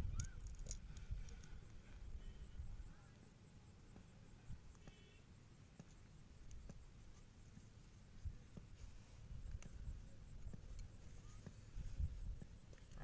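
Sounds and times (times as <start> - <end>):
small clicks: 0.0 - 1.8.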